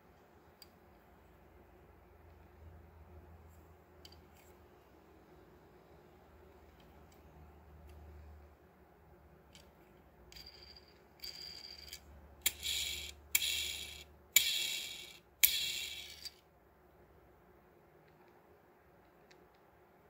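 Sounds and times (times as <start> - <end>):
toy car wheels whirring: 10.3 - 16.4.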